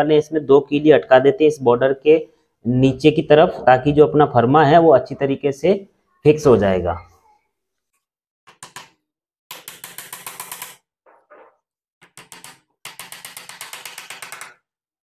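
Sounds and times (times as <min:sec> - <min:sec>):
hammer tapping nails: 0:08.5 - 0:10.8, 0:12.0 - 0:14.6.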